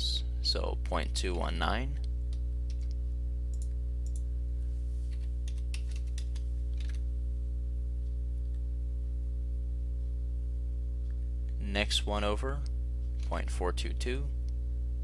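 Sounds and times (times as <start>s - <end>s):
low electrical hum: 0.0s - 15.0s
keyboard keystrokes: 5.1s - 7.0s.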